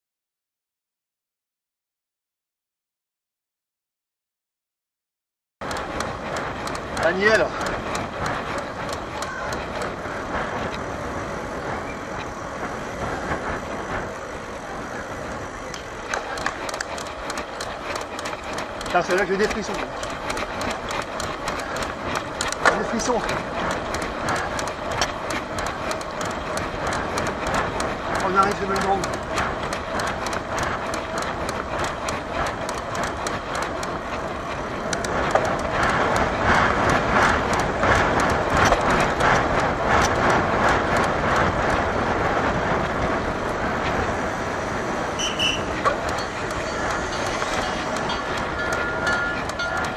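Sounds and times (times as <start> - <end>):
sharp clicks: 5.6 - 10.9, 15.6 - 41.8, 43.6 - 49.9
tyres rolling on tarmac: 5.6 - 49.9
wind on microphone: 5.6 - 49.9.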